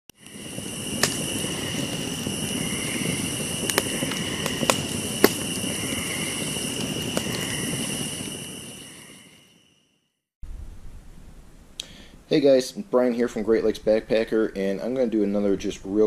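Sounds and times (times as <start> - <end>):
fire crackling and popping: 0.1 - 9.6.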